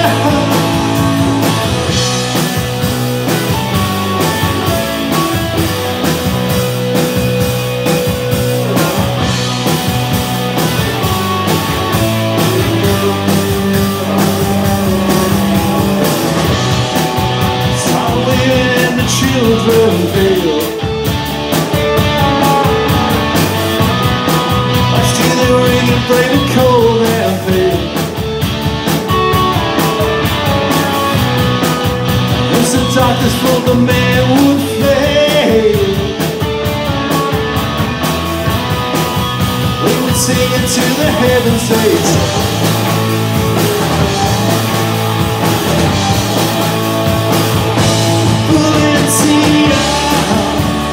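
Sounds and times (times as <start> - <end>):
person singing: 0.0 - 1.6, 17.5 - 20.9, 24.8 - 28.0, 32.4 - 36.4, 39.8 - 42.4, 48.2 - 50.9
live rock band playing: 0.0 - 50.9.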